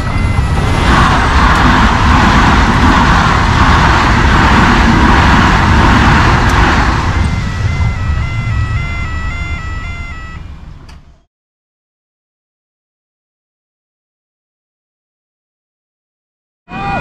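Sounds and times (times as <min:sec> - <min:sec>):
train wheels rushing on rail: 0:00.0 - 0:11.2
crossing warning bells: 0:00.0 - 0:11.3.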